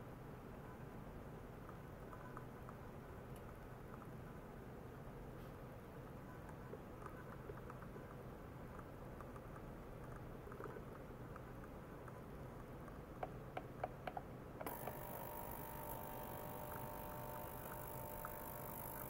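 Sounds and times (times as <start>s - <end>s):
ultrasonic cleaner hissing and humming: 14.7s - 19.0s.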